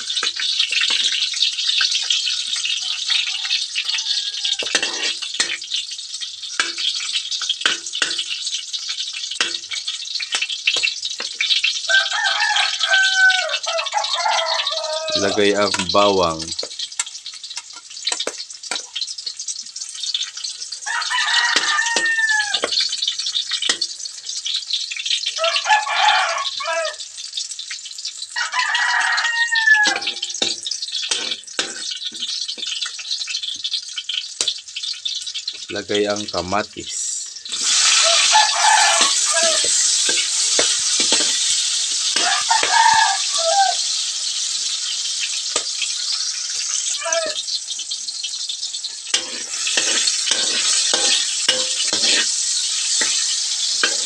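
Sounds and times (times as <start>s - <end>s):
spatula scraping pan: 0.0s - 5.8s, 6.5s - 8.6s, 9.2s - 11.7s, 21.0s - 23.0s, 29.7s - 32.8s, 37.5s - 43.2s, 48.8s - 54.0s
garlic and onion sizzling in oil: 0.0s - 54.0s
rooster crowing: 2.2s - 5.2s, 11.9s - 15.6s, 20.8s - 22.8s, 25.4s - 27.0s, 28.4s - 30.4s, 37.9s - 39.9s, 42.1s - 43.9s, 46.0s - 47.4s
spatula knocking on wok: 4.6s - 5.7s, 7.6s - 8.4s, 9.4s - 11.4s, 16.6s - 18.9s, 21.5s - 22.9s, 29.8s - 32.3s, 39.0s - 41.4s, 49.2s - 52.3s, 53.0s - 54.0s.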